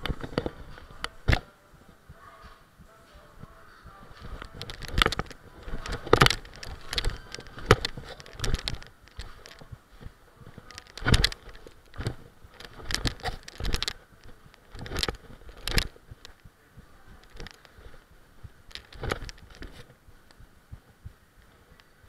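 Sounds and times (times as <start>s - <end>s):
clothing rubbing and scraping: 0.0s - 16.4s.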